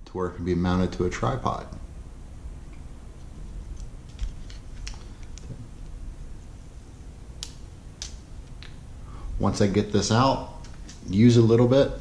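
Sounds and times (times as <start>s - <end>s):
low rumble of hands handling: 2.5s - 11.2s.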